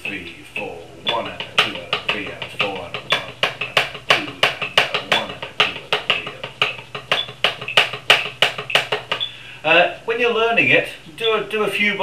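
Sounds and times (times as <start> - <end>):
drumsticks on practice pad: 0.0 - 9.4.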